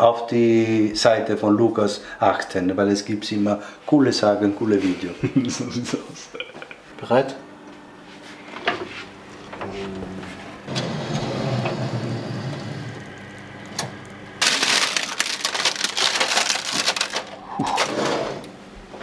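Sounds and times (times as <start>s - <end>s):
baking paper crinkling: 14.4s - 18.0s.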